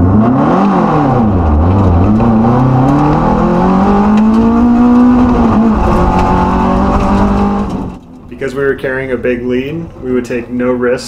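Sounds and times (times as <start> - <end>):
car engine revving from inside: 0.0 - 8.0.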